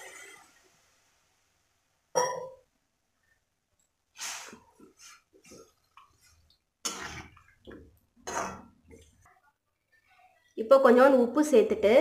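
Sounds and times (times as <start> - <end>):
spoon scraping a pan: 4.2 - 9.4
spoon stirring curry: 4.6 - 10.5.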